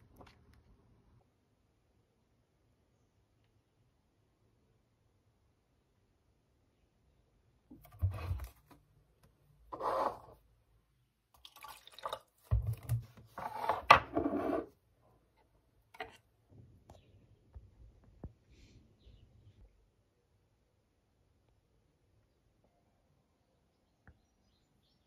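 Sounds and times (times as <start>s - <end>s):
water pouring into cup: 11.4s - 12.8s
plastic bottle handled: 12.4s - 14.6s.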